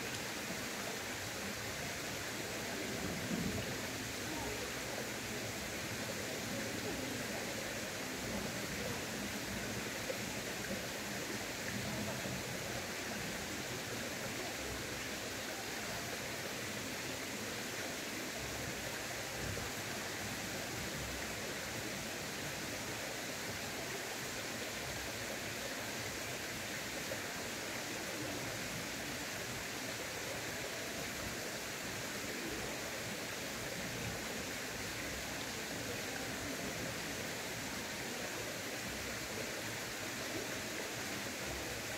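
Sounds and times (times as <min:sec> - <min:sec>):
stream water rushing: 0:00.0 - 0:41.9.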